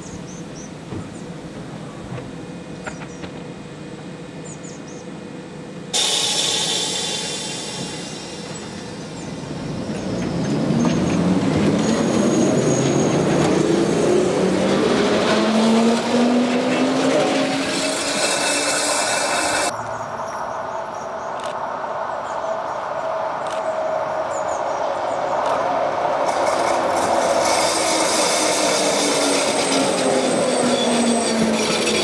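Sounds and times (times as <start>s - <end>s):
tram motor whine rising: 5.4s - 19.7s, 25.0s - 32.0s.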